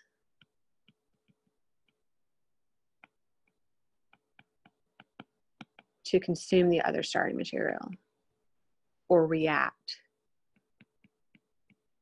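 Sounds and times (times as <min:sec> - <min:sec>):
stylus tapping tablet screen: 0:00.0 - 0:06.2, 0:10.3 - 0:12.0.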